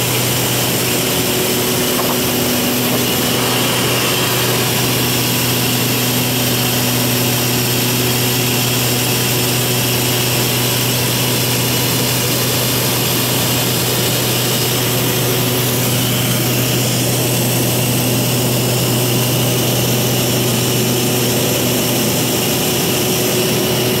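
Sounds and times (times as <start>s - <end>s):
low propeller hum: 0.0s - 17.0s
even rushing noise: 0.1s - 7.6s.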